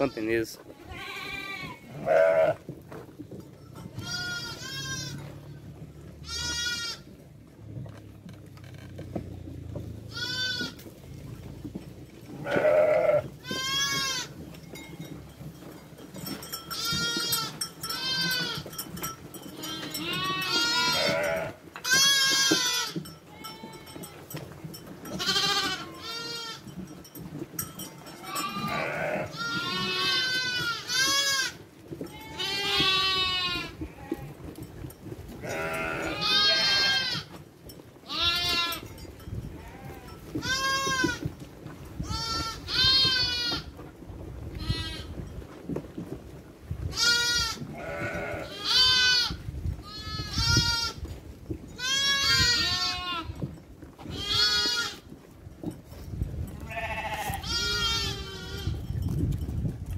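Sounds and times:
sheep bleating: 0.0s - 2.6s, 3.9s - 5.4s, 6.2s - 7.1s, 10.1s - 10.8s, 12.4s - 14.3s, 19.6s - 24.0s, 25.2s - 26.7s, 28.2s - 31.6s, 32.2s - 34.3s, 35.4s - 37.3s, 38.1s - 38.8s, 46.9s - 51.0s, 54.1s - 55.0s, 56.6s - 58.8s.

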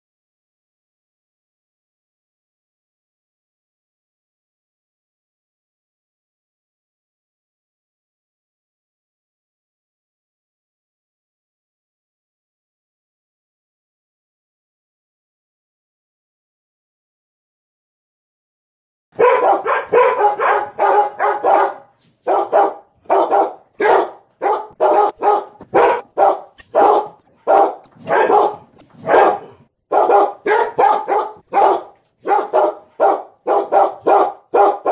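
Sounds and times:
dogs barking excitedly: 19.2s - 34.9s.

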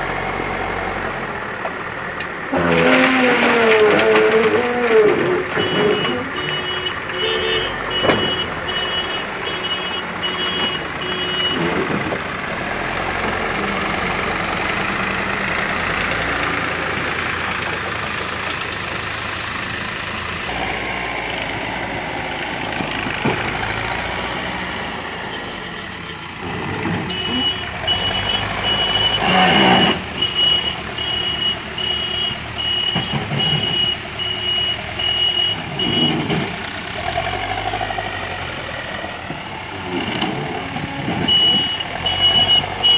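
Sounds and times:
diesel engine running: 0.0s - 42.9s
reversing alarm beeping: 5.5s - 13.0s, 25.0s - 36.5s, 38.8s - 42.9s.

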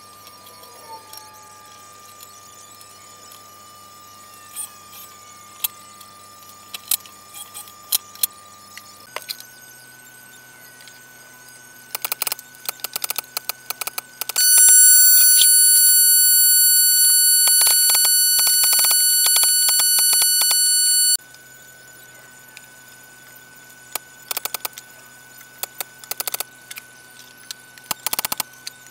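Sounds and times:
sharp clicks: 12.0s - 21.2s, 24.3s - 24.8s, 25.6s - 26.5s, 27.9s - 28.4s
air compressor whining: 14.4s - 21.2s.

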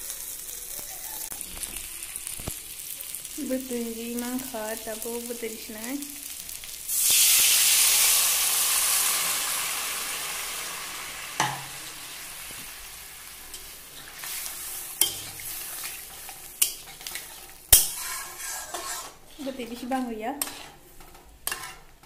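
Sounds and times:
hot oil sizzling: 0.0s - 22.0s
metal spatula scraping pan: 13.5s - 22.0s
spatula clinking on steel: 15.0s - 19.2s.

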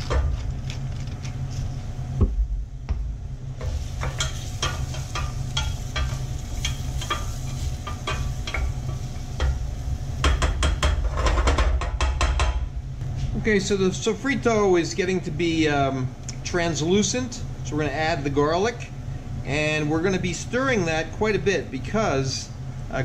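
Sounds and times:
soft sizzle: 0.0s - 11.4s
steady low hum: 0.0s - 23.0s.

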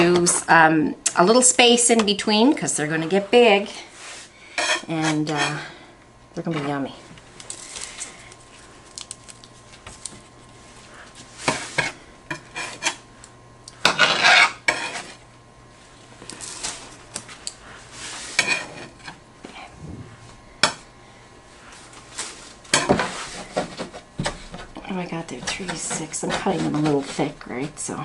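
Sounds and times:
bread knife sawing dough: 25.3s - 28.0s.

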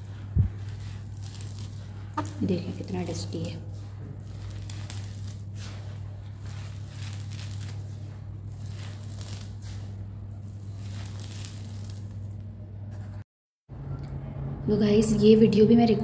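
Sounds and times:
steady low hum: 0.0s - 15.9s
grit pouring onto a heap: 3.8s - 9.9s, 10.5s - 12.2s.

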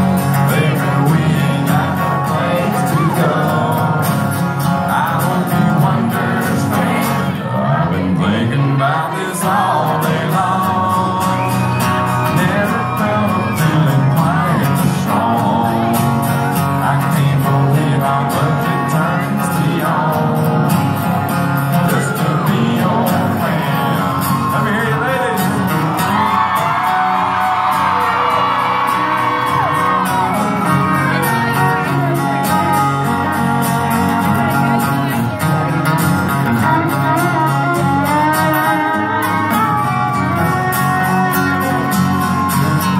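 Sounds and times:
acoustic guitar: 0.0s - 42.9s
live country band playing: 0.0s - 42.9s
man singing: 0.0s - 42.9s
fiddle: 24.0s - 42.9s.

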